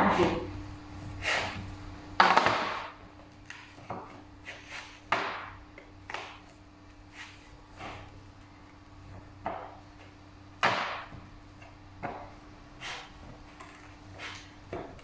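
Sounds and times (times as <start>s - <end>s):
faint steady hum: 0.0s - 15.0s
dough thuds and slaps: 2.2s - 4.2s, 4.8s - 6.5s, 10.6s - 13.4s.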